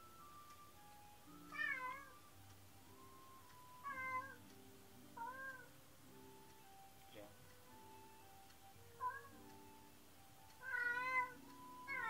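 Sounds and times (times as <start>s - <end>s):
cat meowing: 1.5s - 2.2s, 3.8s - 4.4s, 5.2s - 5.7s, 9.0s - 9.4s, 10.6s - 12.0s.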